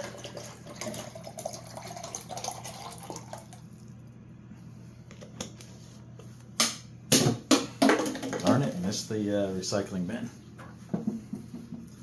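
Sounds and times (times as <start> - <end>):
water pouring into container: 0.0 - 3.9.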